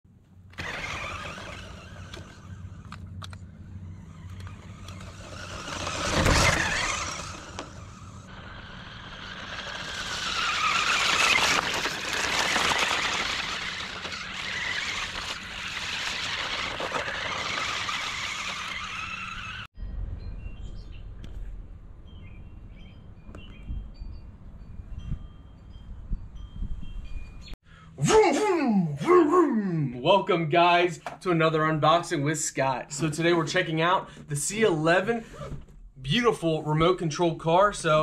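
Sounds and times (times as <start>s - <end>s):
tyres on loose ground: 0.1s - 19.7s
electric motor whining: 0.5s - 19.7s.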